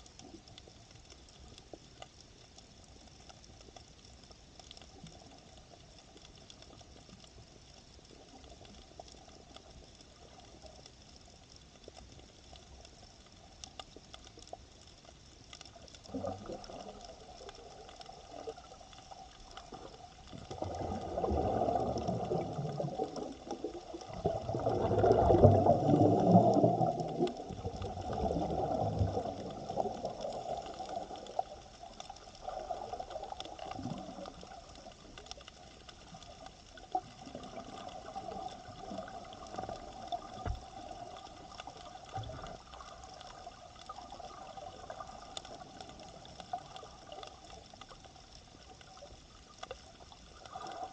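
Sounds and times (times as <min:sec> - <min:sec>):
faint clicks: 0:00.0 - 0:50.9
underwater rushing bubbling water: 0:14.6 - 0:50.9.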